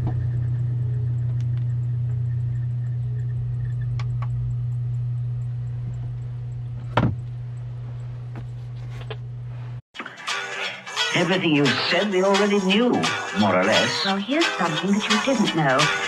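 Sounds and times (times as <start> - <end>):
engine idling from inside cab: 0.0 - 9.7.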